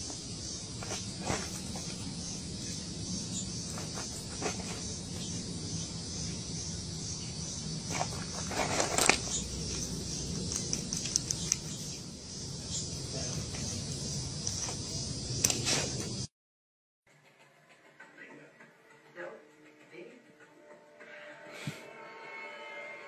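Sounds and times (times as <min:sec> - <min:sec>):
high insect drone: 0:00.0 - 0:16.3.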